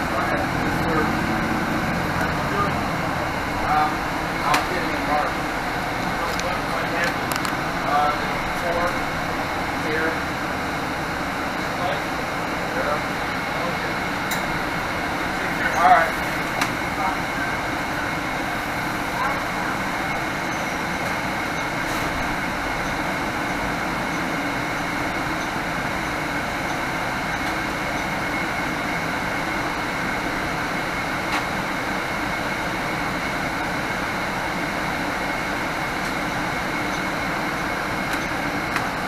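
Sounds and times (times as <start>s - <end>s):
bus engine and road drone: 0.0s - 39.0s.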